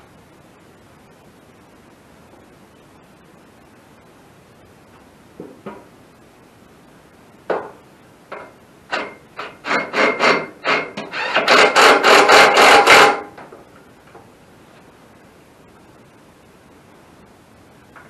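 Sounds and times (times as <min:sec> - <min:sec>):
metal parts scraping and knocking: 0:08.9 - 0:13.2.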